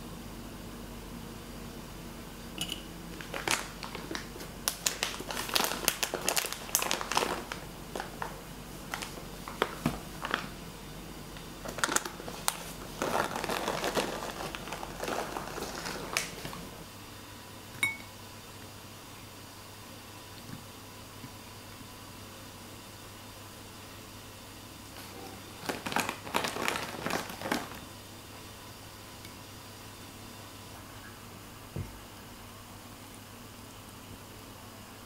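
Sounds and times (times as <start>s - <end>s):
packet crinkling: 3.1s - 10.6s, 11.4s - 16.7s, 25.0s - 27.8s.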